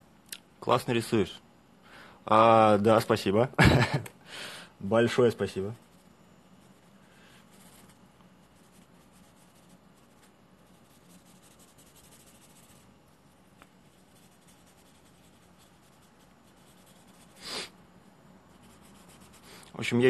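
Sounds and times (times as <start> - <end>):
pencil scratching on paper: 5.8 - 17.7, 18.5 - 19.6.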